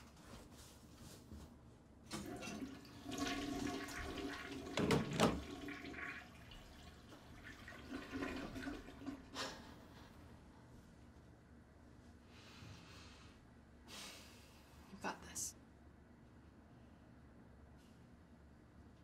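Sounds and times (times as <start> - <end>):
toilet flushing: 2.1 - 10.2.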